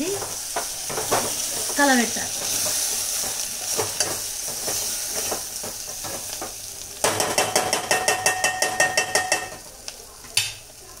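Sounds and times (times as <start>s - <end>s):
onions sizzling in a pot: 0.0s - 11.0s.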